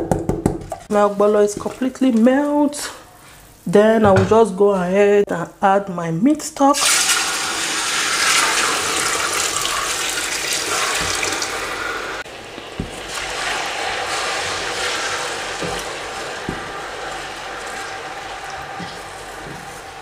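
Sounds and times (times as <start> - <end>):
liquid pouring into pot: 6.8 - 20.0
wooden spoon stirring thick soup: 12.3 - 20.0
soft thuds: 12.7 - 13.1.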